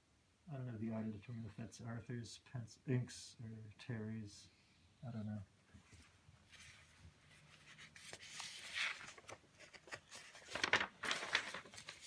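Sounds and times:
paper sheets rustling: 5.8s - 12.0s.

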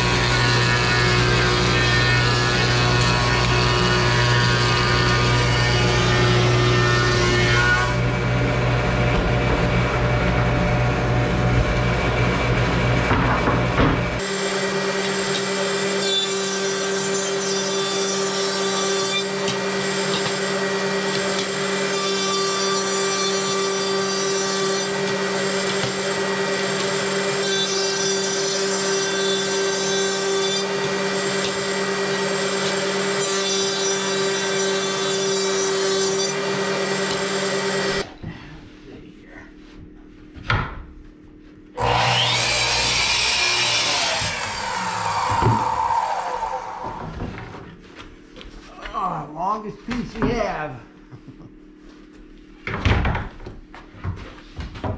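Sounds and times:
cutter milling wood: 0.0s - 7.4s, 14.0s - 38.1s, 41.8s - 47.2s
miter saw cutting board: 0.0s - 38.1s, 41.8s - 47.6s.

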